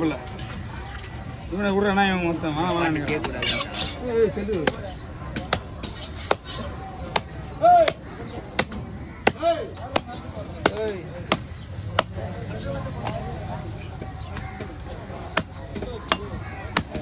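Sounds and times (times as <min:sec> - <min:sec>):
cleaver chopping on wooden block: 0:08.6 - 0:12.2.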